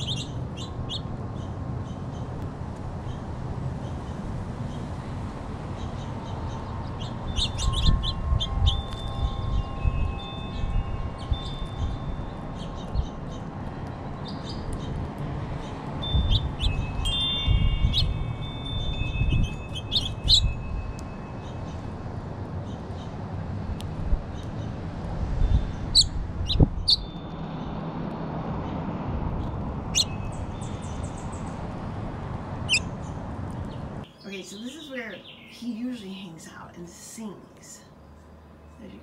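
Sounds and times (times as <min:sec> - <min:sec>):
high bird chirps: 0:00.0 - 0:02.3, 0:05.8 - 0:13.5, 0:15.6 - 0:21.9, 0:25.9 - 0:27.3, 0:29.9 - 0:31.6, 0:32.6 - 0:35.7
wind rumble on microphone: 0:00.0 - 0:34.1
wind chimes ringing: 0:07.2 - 0:12.6, 0:16.0 - 0:21.6.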